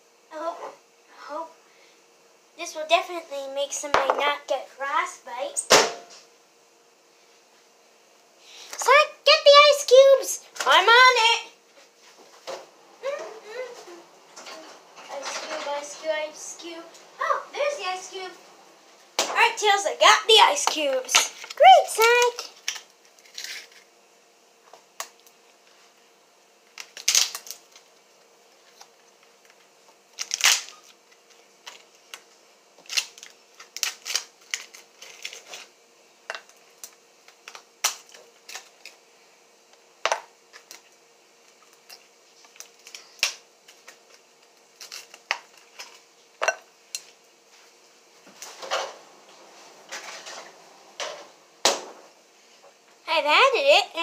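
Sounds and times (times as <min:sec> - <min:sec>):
ice cubes cracking out of tray: 0:26.8 - 0:27.8.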